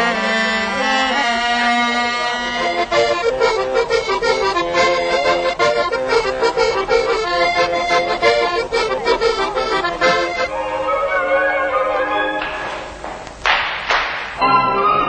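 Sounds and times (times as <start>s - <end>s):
accordion folk dance tune: 0.0s - 13.0s.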